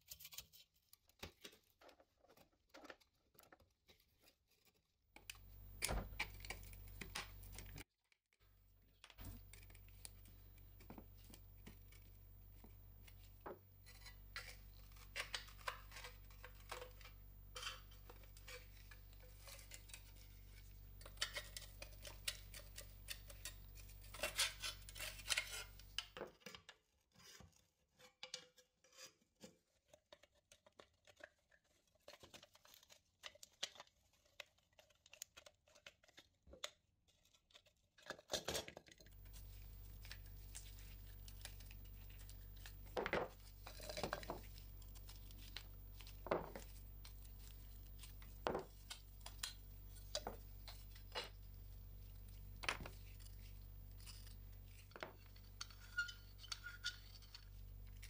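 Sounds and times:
low steady hum: 5.2s - 7.8s, 8.4s - 26.2s, 39.0s - 58.0s
screwdriver scraping metal: 52.8s - 58.0s.

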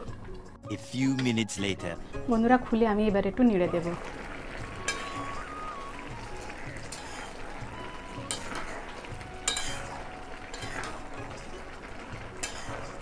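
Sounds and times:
curry simmering: 2.0s - 13.0s
metal spatula scraping a pan: 4.8s - 5.6s, 6.4s - 13.0s.

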